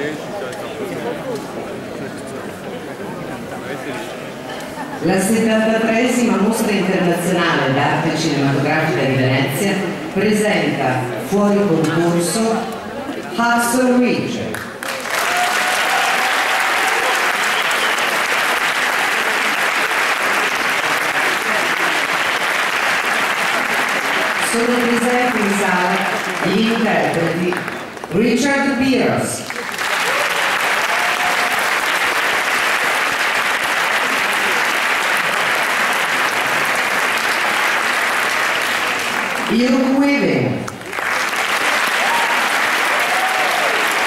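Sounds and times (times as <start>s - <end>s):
audience applauding: 14.5s - 28.2s, 29.4s - 39.6s, 40.7s - 44.0s.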